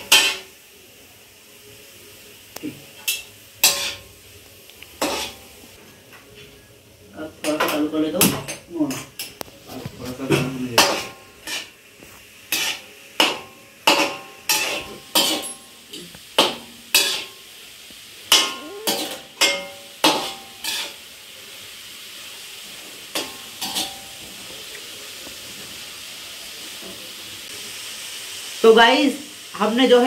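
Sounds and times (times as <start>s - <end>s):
vegetables sizzling in oil: 0.0s - 30.0s
metal ladle clanking on pan: 3.0s - 4.0s.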